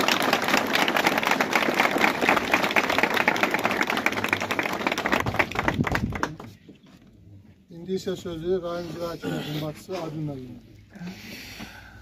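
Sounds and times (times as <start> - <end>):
crowd applauding: 0.0 - 6.6.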